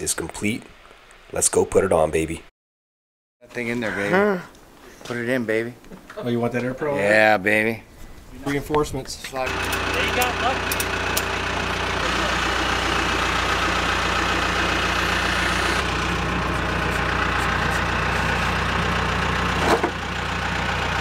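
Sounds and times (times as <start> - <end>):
engine idling: 9.4 - 21.0.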